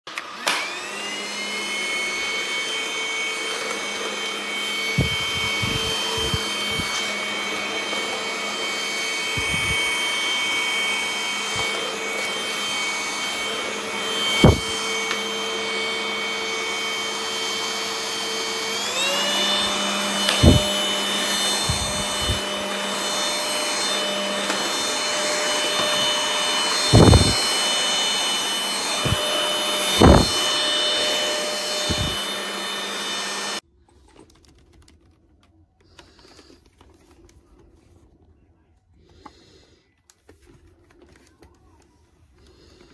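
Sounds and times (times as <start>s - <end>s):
vacuum cleaner motor whine: 0.1s - 33.6s.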